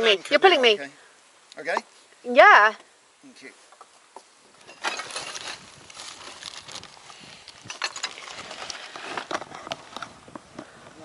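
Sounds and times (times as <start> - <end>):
scrapes and knocks on roof tiles: 4.7 - 6.6.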